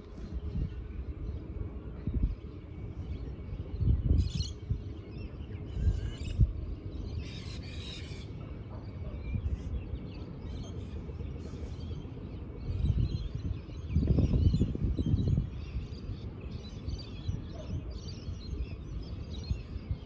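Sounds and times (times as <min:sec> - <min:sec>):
birds calling: 0:00.0 - 0:20.0
wind buffeting microphone: 0:00.0 - 0:20.0.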